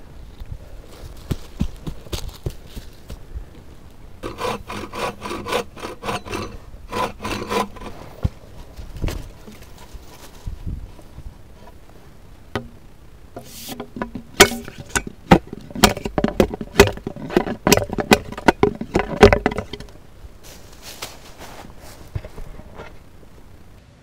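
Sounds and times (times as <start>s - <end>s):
bamboo pole knocking and clicking: 12.6s - 12.8s, 13.4s - 20.0s.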